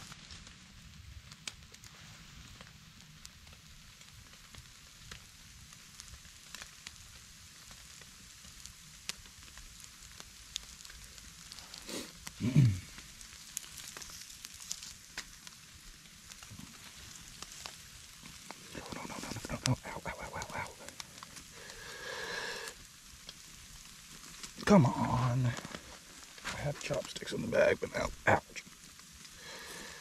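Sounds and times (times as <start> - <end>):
campfire embers crackling and sizzling: 0.0 - 30.0.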